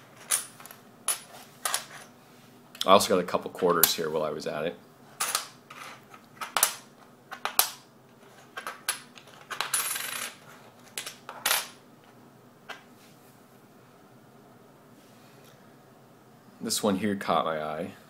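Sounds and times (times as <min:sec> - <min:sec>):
coins clinking on wood: 0:00.1 - 0:02.1, 0:05.2 - 0:07.8, 0:08.5 - 0:11.8.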